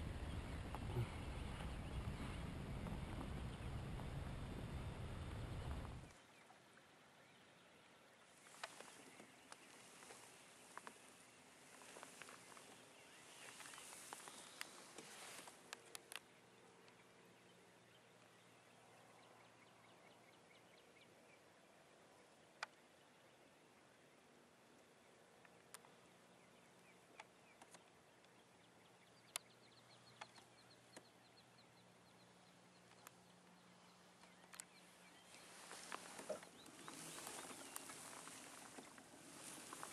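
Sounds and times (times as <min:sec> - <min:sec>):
low rumbling noise: 0:00.0 - 0:06.1
open water ambience hiss: 0:00.0 - 0:39.9
faint sharp clicks: 0:08.4 - 0:11.1, 0:13.4 - 0:17.0, 0:22.5 - 0:22.8, 0:24.7 - 0:31.5, 0:32.8 - 0:39.9
soft sharp clicks: 0:29.2 - 0:31.2, 0:32.8 - 0:33.6, 0:34.2 - 0:39.9.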